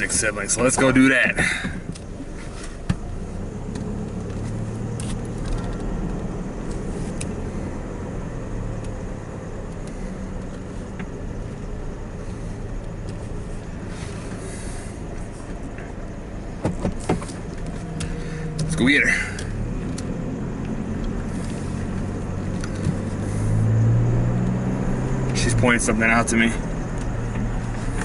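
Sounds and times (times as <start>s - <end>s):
truck engine hum: 0.0s - 28.0s.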